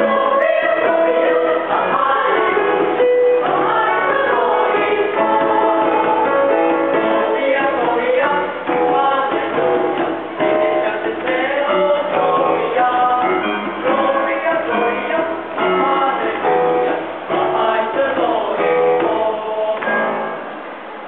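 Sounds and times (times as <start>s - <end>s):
children's choir singing: 0.0s - 20.9s.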